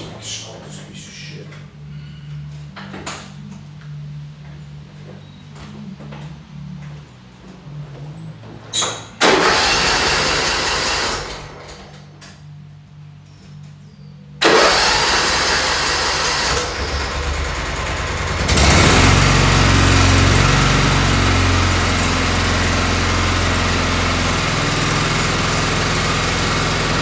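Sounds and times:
tractor engine cranking: 9.2s - 12.0s, 14.4s - 21.0s
tractor engine running: 9.2s - 12.0s, 14.4s - 27.0s.

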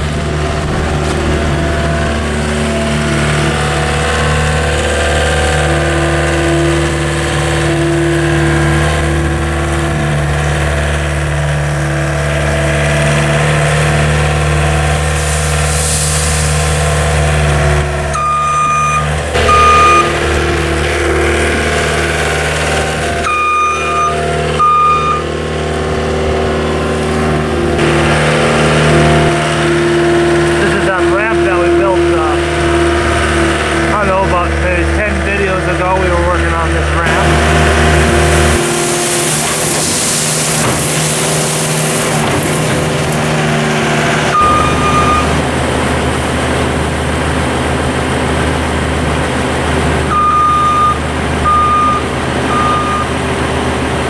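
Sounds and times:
diesel engine running: 0.0s - 54.0s
backup alarm beeping: 18.1s - 20.2s, 23.2s - 25.3s, 44.3s - 45.4s, 50.1s - 53.1s.

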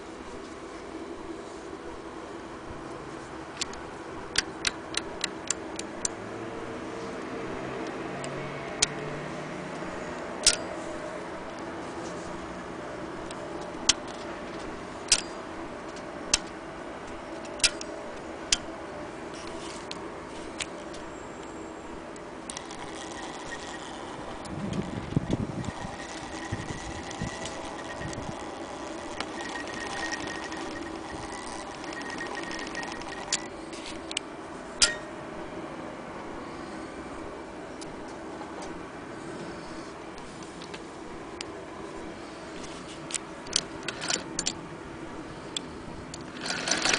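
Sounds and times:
steady background noise: 0.0s - 46.9s
sewing machine mechanism clicking: 22.5s - 33.5s, 43.5s - 44.6s, 46.2s - 46.9s.

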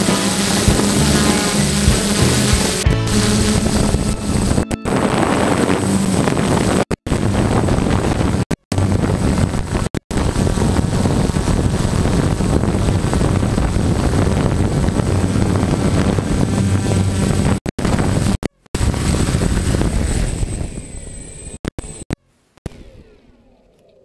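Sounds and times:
thin high whine: 0.0s - 6.9s
drone motors and propellers: 0.0s - 24.0s
wind buffeting on microphone: 1.7s - 21.4s.

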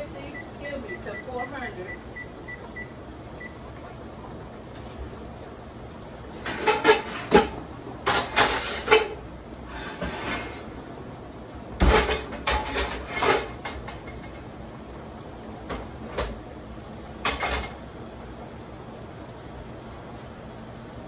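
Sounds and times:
metal pans clattering: 6.4s - 10.8s, 11.8s - 14.5s, 17.2s - 17.8s.

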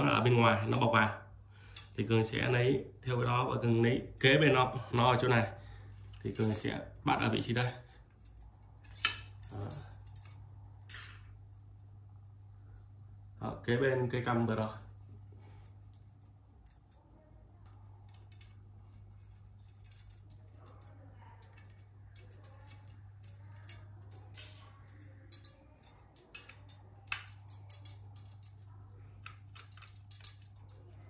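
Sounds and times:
metallic clicks of bicycle spokes: 21.4s - 30.8s.

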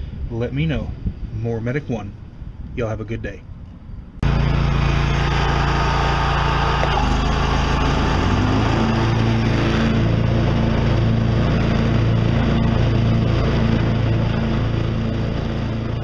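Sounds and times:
mower engine running: 4.2s - 16.0s.

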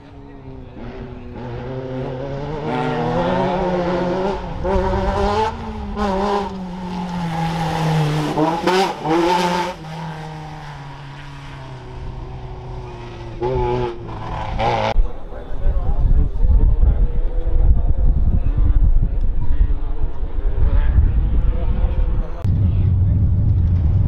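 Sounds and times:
buggy engine revving: 0.0s - 15.0s.

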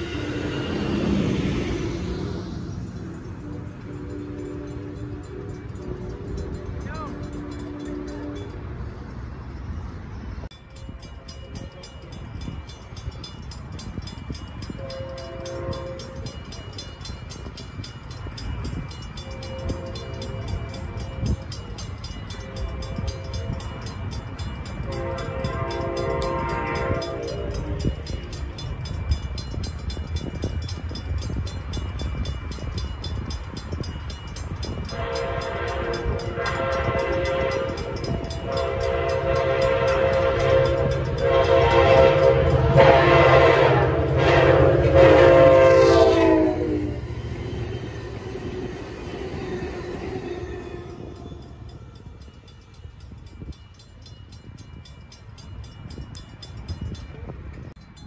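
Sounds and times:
low train rumble: 0.0s - 58.0s
train horn blasts: 3.4s - 8.8s, 14.7s - 16.4s, 19.2s - 21.5s, 22.3s - 23.9s, 24.8s - 28.2s, 34.9s - 51.6s.

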